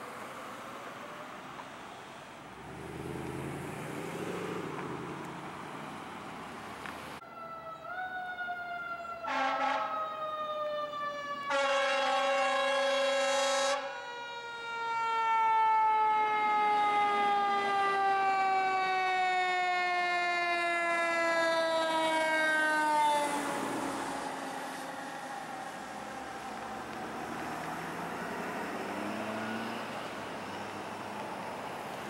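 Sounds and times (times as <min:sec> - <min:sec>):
fire truck siren winding down: 0:07.2 - 0:32.0
horn blasts: 0:09.2 - 0:10.0, 0:11.5 - 0:13.8.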